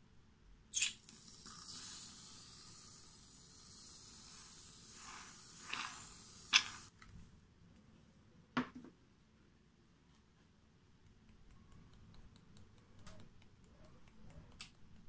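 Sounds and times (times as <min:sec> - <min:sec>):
aerosol foam can spraying: 0:01.1 - 0:07.0.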